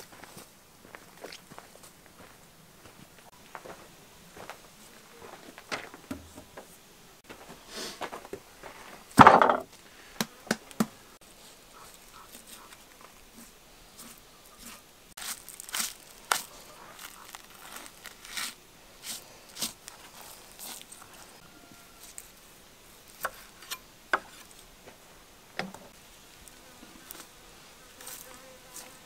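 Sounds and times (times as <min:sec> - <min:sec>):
heavy thump on wooden table: 0:09.2 - 0:09.7
sharp knocks: 0:09.2 - 0:09.7.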